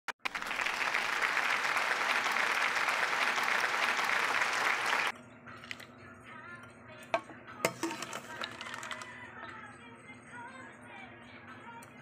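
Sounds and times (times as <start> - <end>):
crowd clapping: 0.1 - 5.1.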